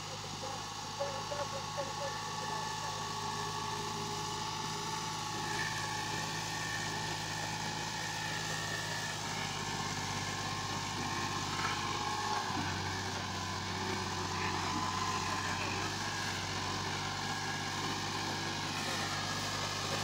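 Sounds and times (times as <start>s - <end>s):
steady whine: 0.0s - 20.0s
tractor engine running: 0.0s - 20.0s.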